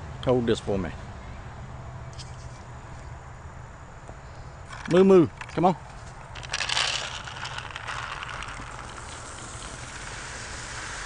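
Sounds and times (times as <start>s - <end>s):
feed rattling in plastic bucket: 6.4s - 10.2s.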